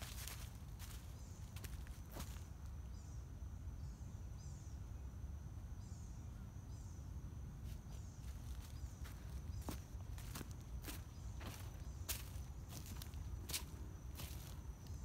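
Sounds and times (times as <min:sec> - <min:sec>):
footsteps crunching on leaves: 0:00.0 - 0:02.5, 0:07.7 - 0:15.0
insect drone: 0:00.0 - 0:15.0.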